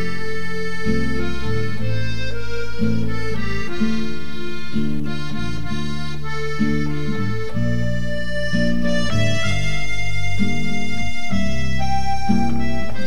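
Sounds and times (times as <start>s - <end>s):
reedy melody over low chords: 0.0s - 13.0s.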